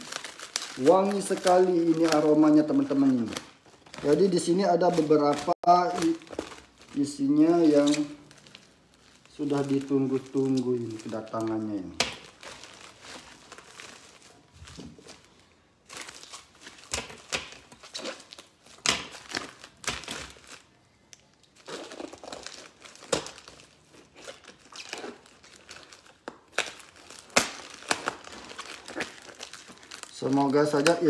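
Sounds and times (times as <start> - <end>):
plastic wrapping crinkling: 0.0 - 31.0
sharp plastic crackles: 0.0 - 31.0.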